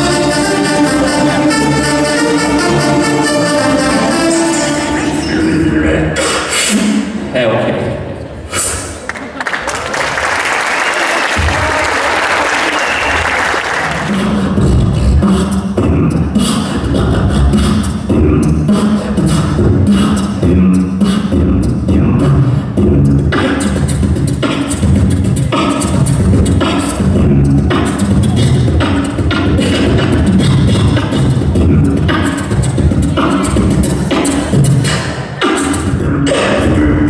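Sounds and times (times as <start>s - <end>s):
beatboxing into a microphone: 5.4s - 7.3s, 8.1s - 9.4s, 13.8s - 37.0s
applause: 9.1s - 14.1s.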